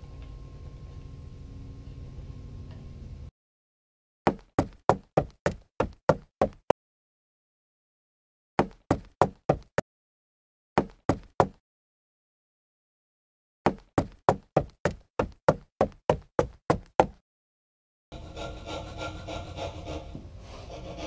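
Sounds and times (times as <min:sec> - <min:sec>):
hammer knocking wooden peg: 0:04.3 - 0:06.6, 0:08.6 - 0:09.8, 0:13.7 - 0:17.2.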